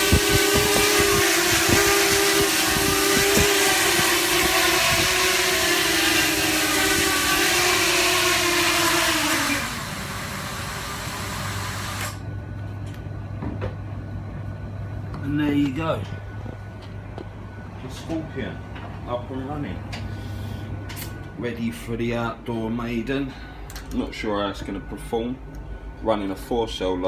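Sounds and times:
quadcopter motors whining: 0.0s - 12.2s.

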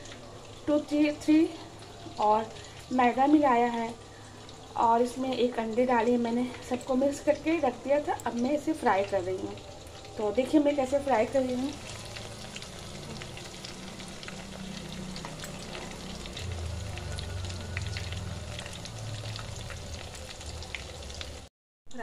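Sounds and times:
chicken frying in oil: 0.0s - 22.0s
low hum: 6.2s - 21.4s.

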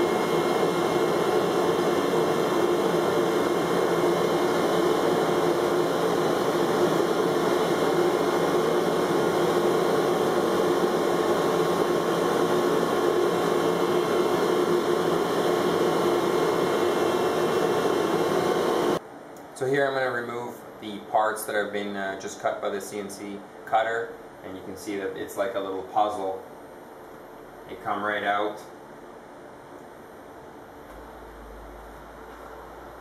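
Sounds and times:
cnc cutting machine running: 0.0s - 19.0s.

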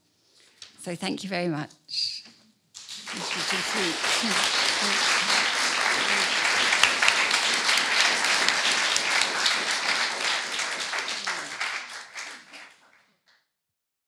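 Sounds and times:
audience applauding: 2.8s - 13.0s.

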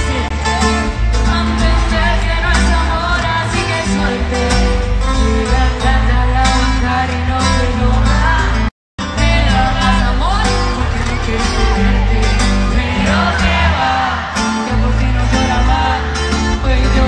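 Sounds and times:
woman singing into a microphone: 0.0s - 12.2s
live band with guitar and drums: 0.0s - 17.0s.

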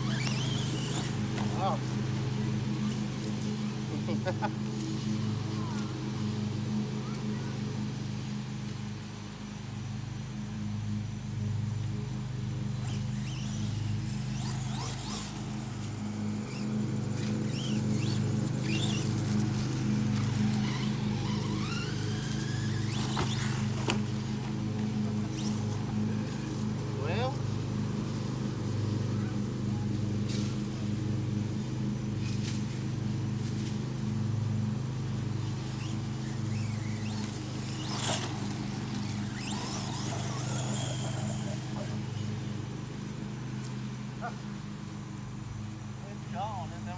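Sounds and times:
electric motor whining: 0.0s - 9.6s, 10.4s - 46.7s
low pulsing hum: 0.0s - 46.9s
steady low drone: 0.0s - 46.9s.

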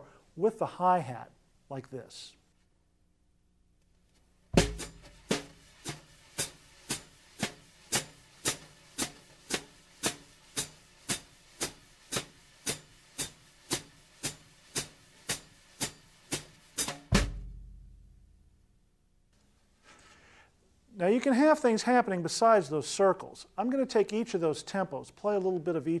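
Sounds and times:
drum hit ringing: 4.6s - 10.2s, 14.2s - 18.2s
hi-hat pedal chicks: 4.6s - 17.1s
brushes sweeping on snare drum: 4.6s - 17.3s.

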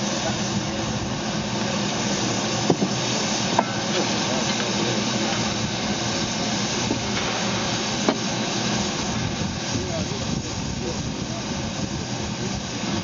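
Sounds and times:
steam hissing: 0.0s - 13.0s.

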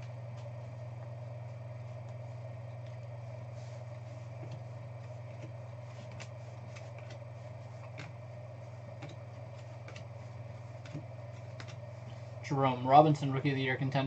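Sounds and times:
steady low hum: 0.0s - 14.0s
trading cards flipped by hand: 5.2s - 7.2s.

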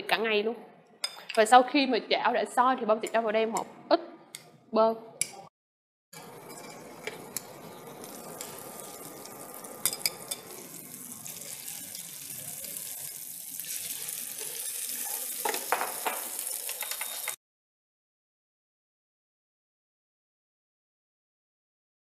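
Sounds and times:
bread sizzling in a frying pan: 6.2s - 17.4s
metal tongs clicking on pan: 9.8s - 10.6s.

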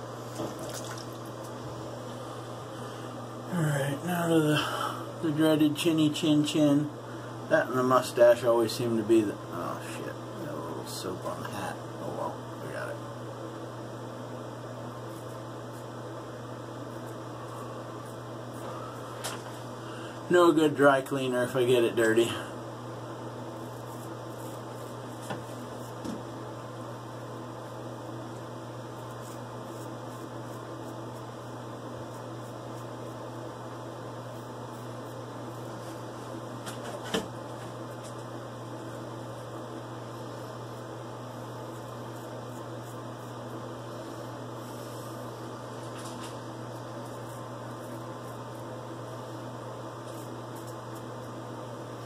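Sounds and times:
low mechanical hum: 0.0s - 52.0s
razor scraping stubble: 23.6s - 26.0s, 29.0s - 33.2s, 40.6s - 48.8s, 50.0s - 51.3s.

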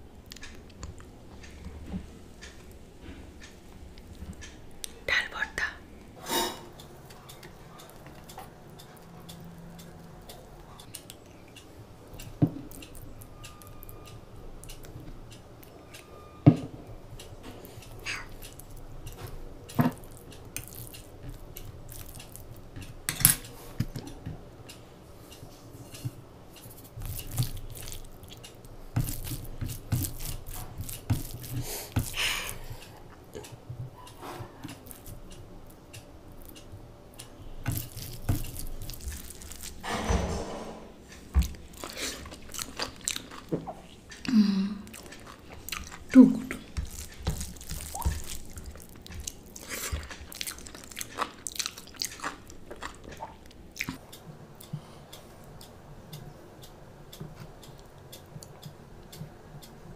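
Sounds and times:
fingers squishing wet rice: 19.9s - 22.6s, 26.6s - 32.9s, 36.0s - 39.8s, 45.0s - 54.0s.

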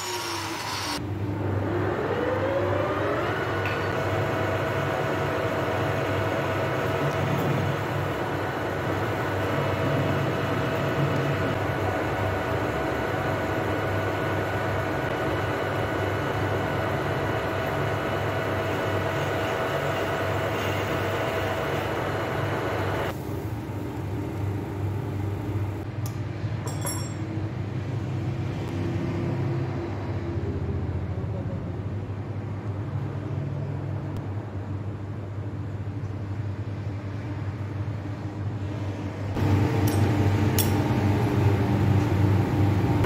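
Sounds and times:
metal clinks: 26.6s - 27.2s.

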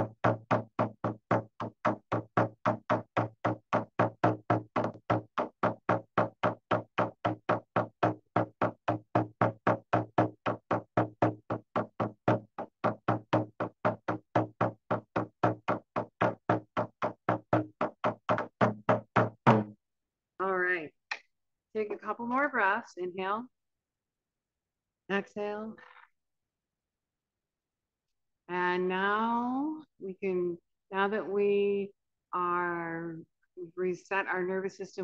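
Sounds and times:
hand drum thumps: 0.0s - 19.8s.

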